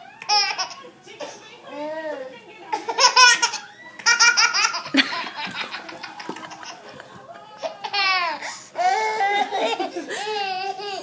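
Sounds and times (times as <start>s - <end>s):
baby laughing: 0.2s - 0.9s, 2.7s - 11.0s.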